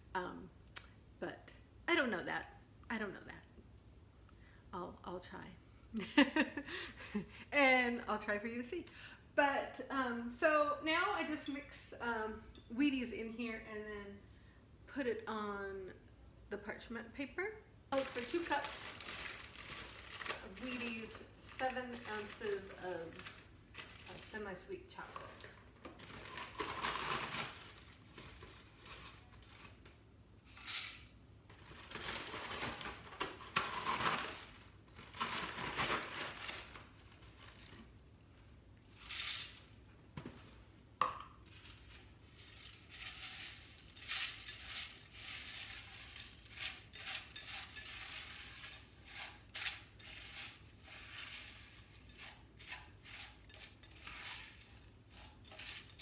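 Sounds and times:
cereal flakes pouring: 0:18.0 - 0:24.4, 0:41.6 - 0:56.0
spoon scraping and clinking pot: 0:44.2 - 0:56.0.

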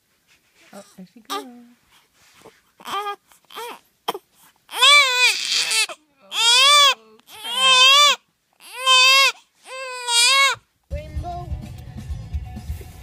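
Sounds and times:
baby crying: 0:02.8 - 0:10.6.

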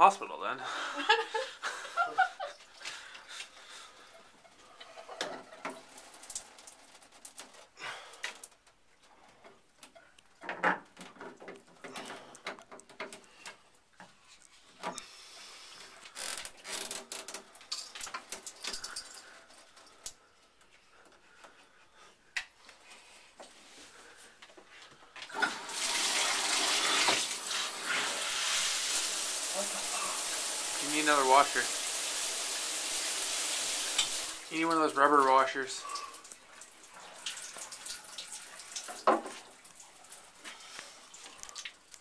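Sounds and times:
hiss: 0:25.6 - 0:34.4.

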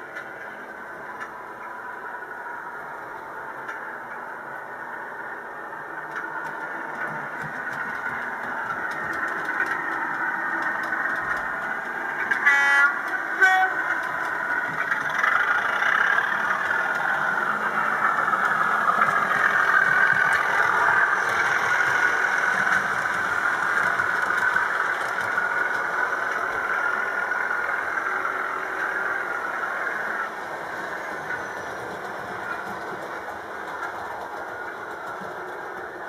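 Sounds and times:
model train running: 0:00.0 - 0:36.0
model train horn blasts: 0:12.4 - 0:13.9.

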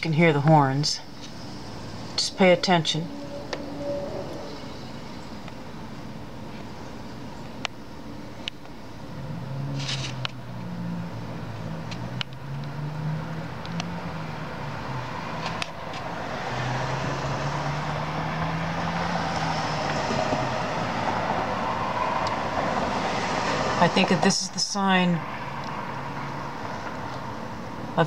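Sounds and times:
passing traffic: 0:00.0 - 0:28.0
droning horn-like tones: 0:00.9 - 0:06.9.

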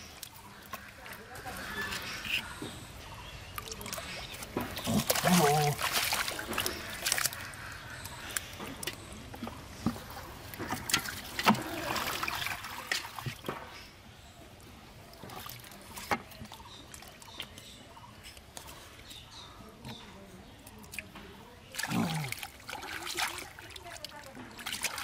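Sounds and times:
hands squelching in wet mud: 0:00.0 - 0:13.5, 0:20.8 - 0:25.0.

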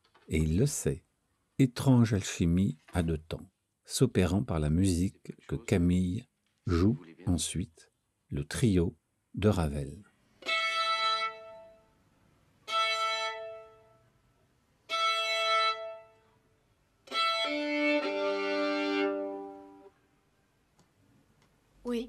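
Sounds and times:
bowed violin: 0:10.4 - 0:11.8, 0:12.6 - 0:13.9, 0:14.9 - 0:16.2, 0:17.0 - 0:19.9.

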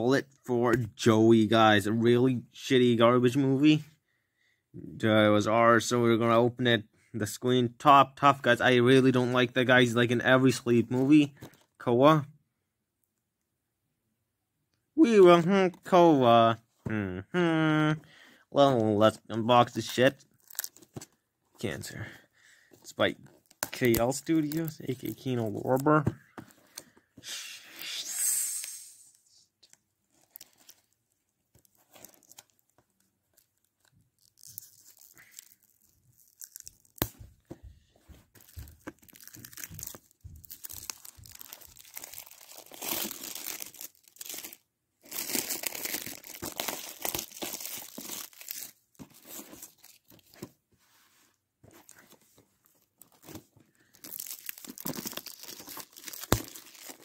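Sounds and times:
plastic shrink wrap crinkling: 0:19.7 - 0:21.1, 0:22.9 - 0:26.9, 0:29.6 - 0:50.4, 0:51.8 - 0:57.0.

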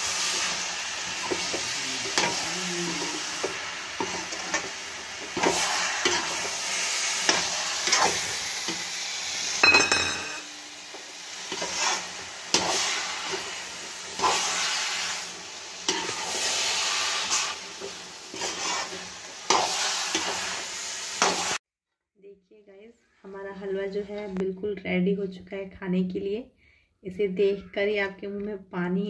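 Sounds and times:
light sizzle of cooking: 0:00.0 - 0:21.6
spatula scraping a metal pan: 0:01.1 - 0:06.4, 0:07.2 - 0:08.8, 0:11.5 - 0:13.4, 0:18.3 - 0:20.4.

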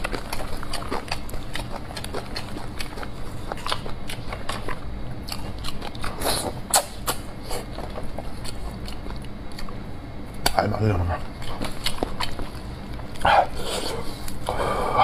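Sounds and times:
wet chewing and smacking: 0:00.0 - 0:14.6.

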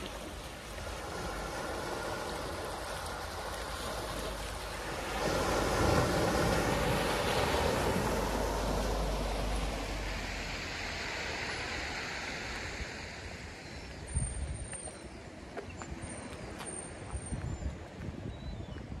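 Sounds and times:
small waves on a shingle beach: 0:00.0 - 0:18.3
wind rumbling on microphone: 0:00.0 - 0:19.0.

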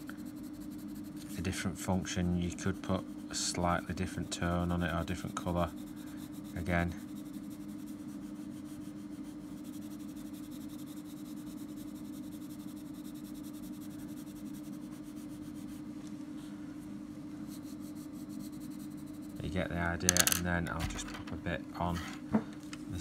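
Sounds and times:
pencil scratching on paper: 0:00.0 - 0:15.9, 0:17.4 - 0:19.8
steady low hum: 0:00.0 - 0:23.0.

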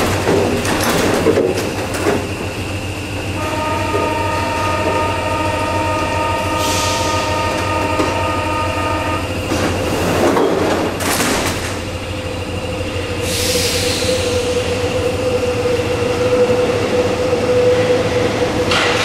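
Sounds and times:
train doors closing with clatter: 0:00.0 - 0:19.0
buzzing warning tone: 0:02.7 - 0:09.9.

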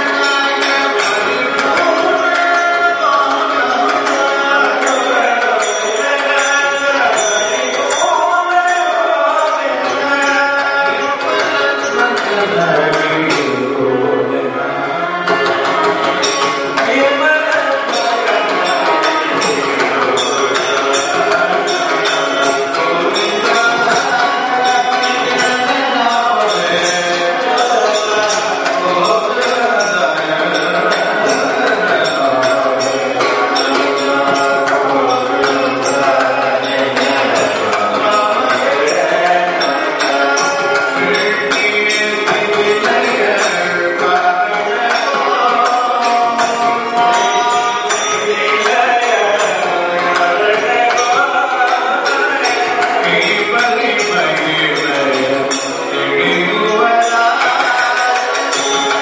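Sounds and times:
man singing devotional song: 0:00.0 - 0:59.0.

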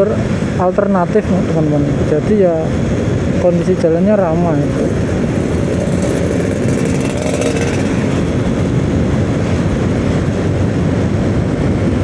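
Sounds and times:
motorcycle engine and road noise: 0:00.0 - 0:12.0
wind on microphone: 0:00.0 - 0:12.0.

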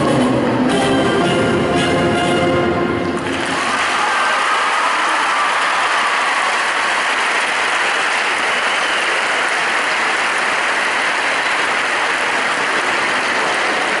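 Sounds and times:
large audience applauding: 0:03.2 - 0:14.0.

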